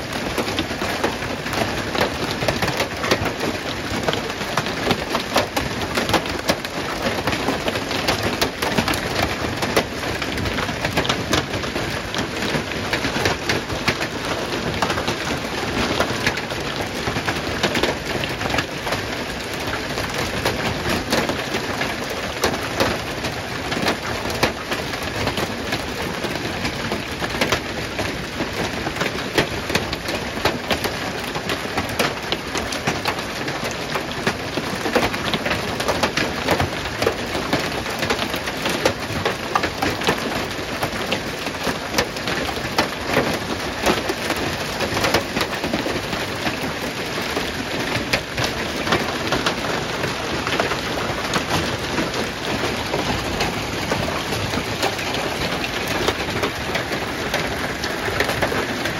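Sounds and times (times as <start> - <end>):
hail clattering on cars and gravel: 0.0 - 58.9.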